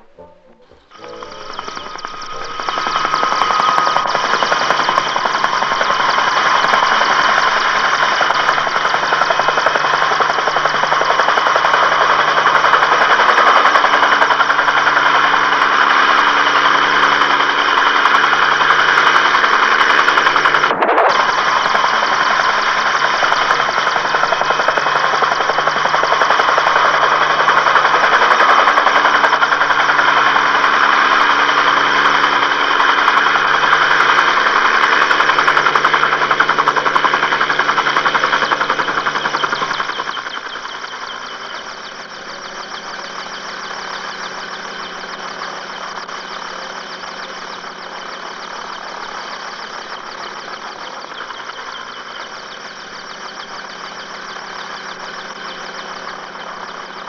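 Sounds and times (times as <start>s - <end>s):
helicopter rotor beating: 0.0s - 57.0s
helicopter turbine whining: 0.0s - 57.0s.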